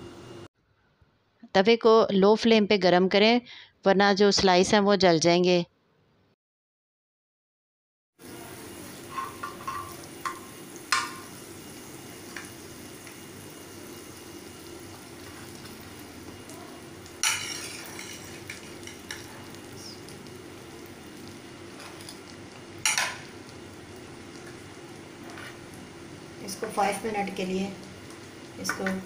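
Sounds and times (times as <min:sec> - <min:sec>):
fat sizzling on hot iron: 0:08.2 - 0:29.0
metal spatula scraping: 0:09.0 - 0:10.0, 0:17.2 - 0:19.3, 0:21.7 - 0:22.2, 0:25.2 - 0:25.6.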